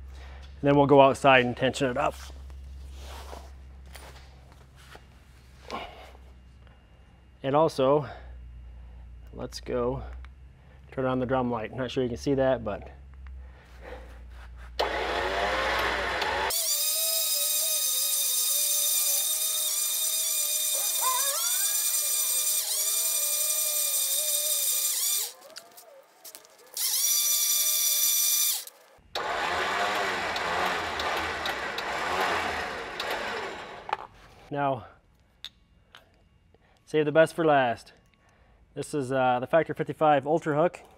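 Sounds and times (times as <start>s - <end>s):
electric winch motor whining: 14.8s - 34.5s.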